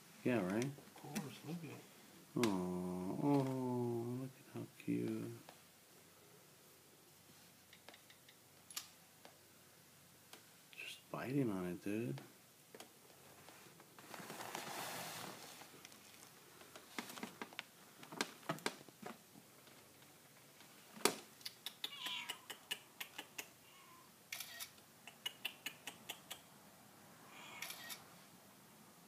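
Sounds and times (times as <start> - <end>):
faint kitten mew: 23.6 - 24.1, 27.3 - 28.0
camera shutter clicking: 24.3 - 24.7, 27.6 - 28.0.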